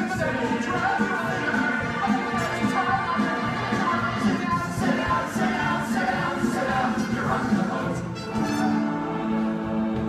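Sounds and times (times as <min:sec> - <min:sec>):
orchestra playing held chords with brass: 0:08.1 - 0:09.7.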